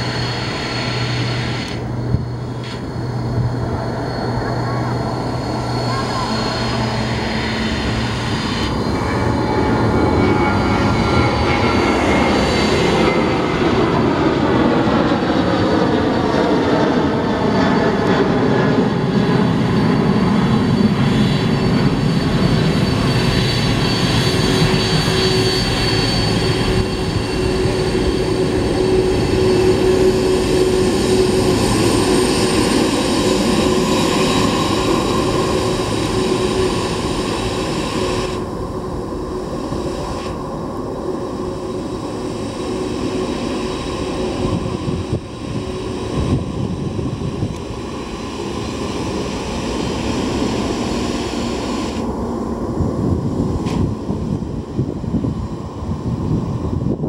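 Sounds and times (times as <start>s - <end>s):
jet engines rumbling with high whine: 0.0s - 57.0s.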